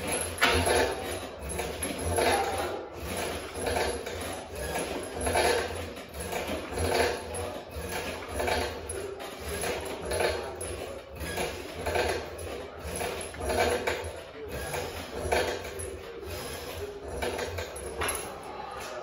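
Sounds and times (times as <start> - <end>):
metal cable rasping over pulley: 0.0 - 19.0.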